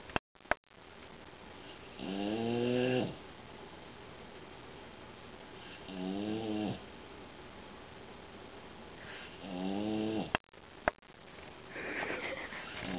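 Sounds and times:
dog snoring: 0:01.6 - 0:03.2, 0:05.6 - 0:06.8, 0:09.2 - 0:10.4.

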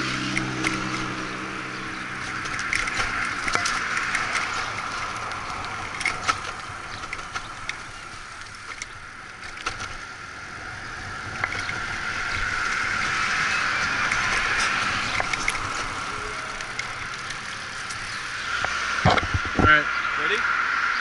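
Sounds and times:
rattling clicks and knocks: 0:00.0 - 0:10.0
bicycle rolling on concrete: 0:00.0 - 0:21.0.

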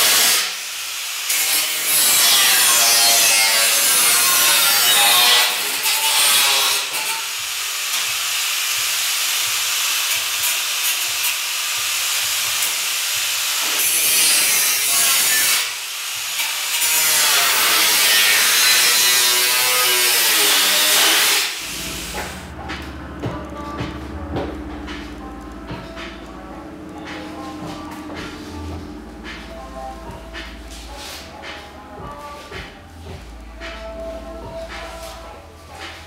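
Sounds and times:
angle grinder cutting metal: 0:00.0 - 0:22.6
low steady hum: 0:21.6 - 0:36.0.

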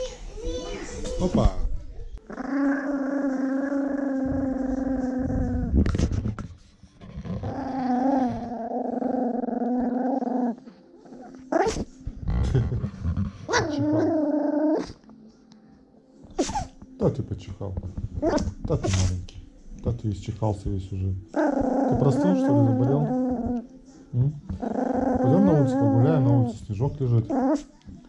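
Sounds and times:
dog growling: 0:02.2 - 0:15.2, 0:21.3 - 0:27.8
dog sneezing: 0:16.3 - 0:16.8, 0:18.8 - 0:19.2.

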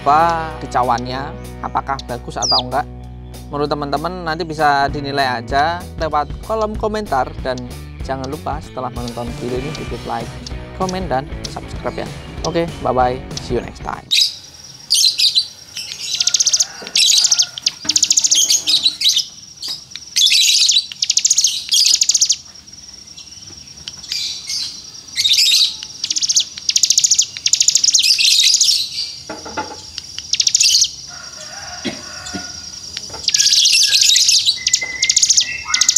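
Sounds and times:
bird singing high-pitched trills: 0:00.1 - 0:05.4, 0:14.1 - 0:31.1, 0:32.4 - 0:35.9.

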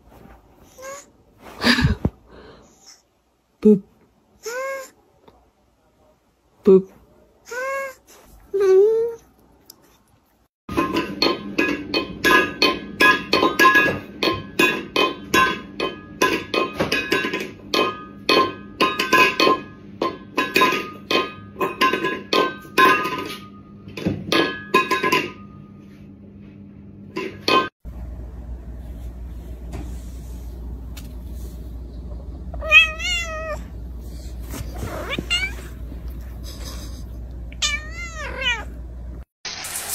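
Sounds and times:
metal bowl clanging on floor: 0:10.7 - 0:25.6.

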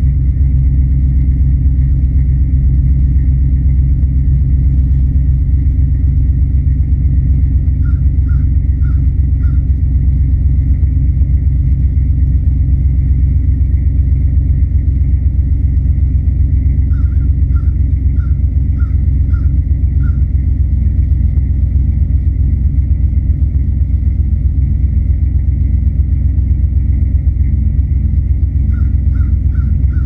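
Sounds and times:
truck engine idling: 0:00.0 - 0:30.0
crows cawing: 0:07.8 - 0:09.7, 0:16.9 - 0:20.3, 0:28.7 - 0:30.0.

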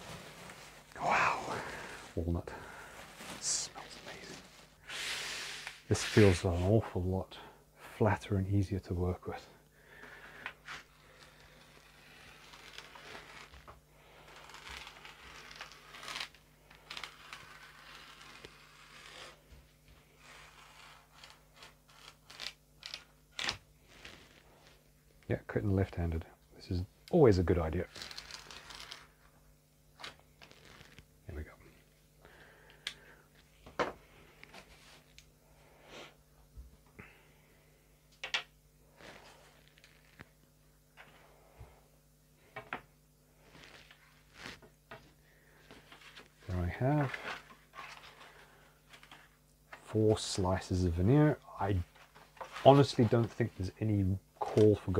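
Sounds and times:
veneer sheet rustling: 0:00.0 - 0:06.9, 0:30.0 - 0:31.1, 0:43.4 - 0:44.8, 0:51.7 - 0:53.7.

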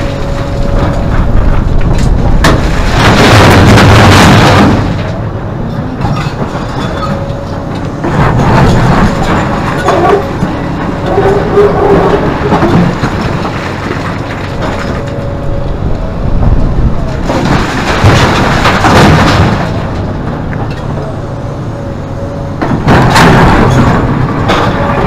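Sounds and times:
excavator diesel engine under load: 0:00.0 - 0:25.0
surges of rushing noise: 0:01.2 - 0:05.3.

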